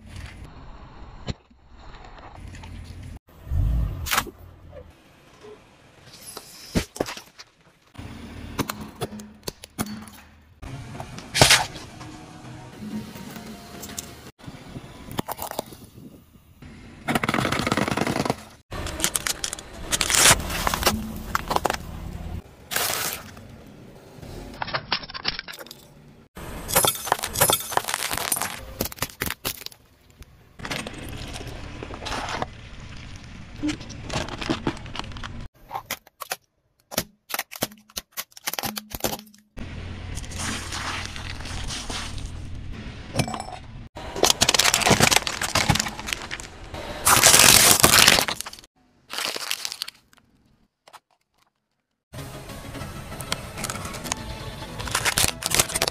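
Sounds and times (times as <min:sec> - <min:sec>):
car tyre crushing objects: 0:17.1 - 0:23.6, 0:26.4 - 0:42.5, 0:44.0 - 0:50.2, 0:54.8 - 0:55.9.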